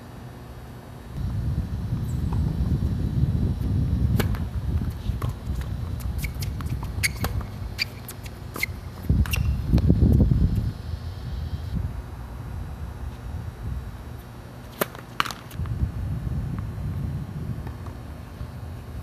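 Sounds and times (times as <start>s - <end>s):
wind buffeting microphone: 1.2s - 7.8s, 8.8s - 14.0s, 15.6s - 19.0s
tennis ball pops and bounces: 14.7s - 15.6s.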